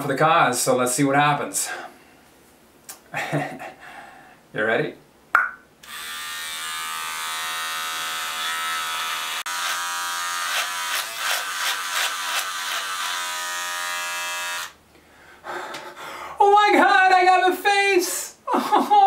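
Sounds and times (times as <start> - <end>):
electric beard trimmer buzzing: 5.8 - 14.8.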